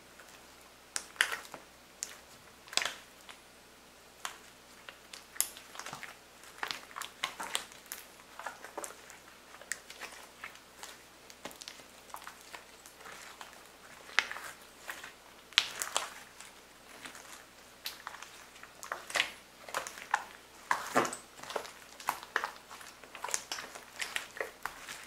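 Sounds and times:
slime squelching and popping: 0:00.2 - 0:03.4, 0:04.2 - 0:25.0.

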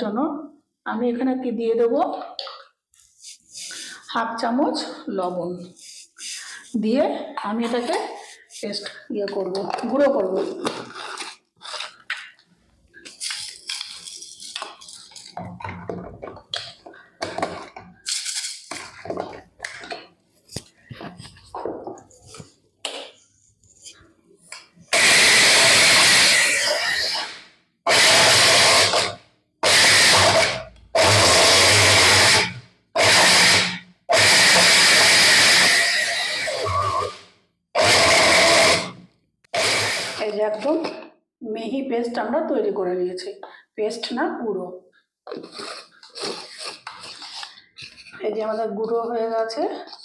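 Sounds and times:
mixer grinder running: 0:24.9 - 0:37.2, 0:37.8 - 0:40.2.

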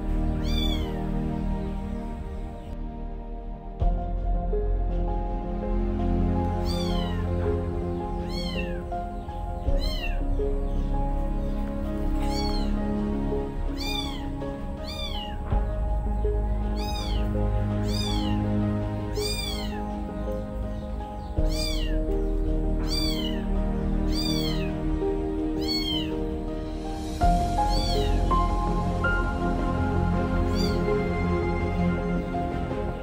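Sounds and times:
music with long held tones: 0:00.0 - 0:33.0
kitten meowing: 0:00.4 - 0:01.1, 0:06.6 - 0:07.4, 0:08.2 - 0:10.2, 0:12.2 - 0:12.8, 0:13.7 - 0:15.5, 0:16.6 - 0:18.5, 0:19.2 - 0:20.1, 0:21.4 - 0:22.1, 0:22.8 - 0:23.4, 0:24.1 - 0:24.7, 0:25.6 - 0:26.2, 0:27.6 - 0:28.2, 0:30.5 - 0:30.9.

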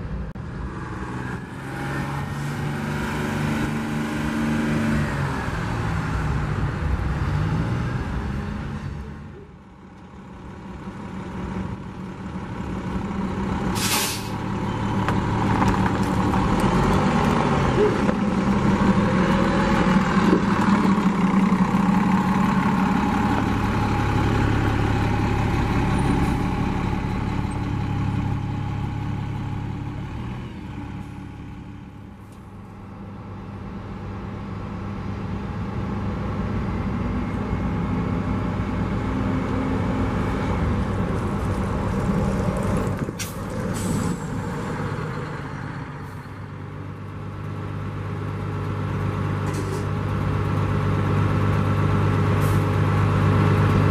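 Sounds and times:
diesel bus engine running: 0:00.0 - 0:53.9
air brake hiss: 0:13.8 - 0:14.4, 0:43.2 - 0:44.3.

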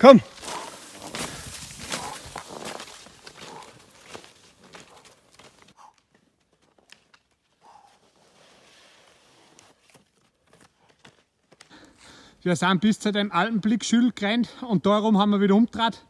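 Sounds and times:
skis and poles scraping snow: 0:00.1 - 0:05.8, 0:06.9 - 0:11.3.

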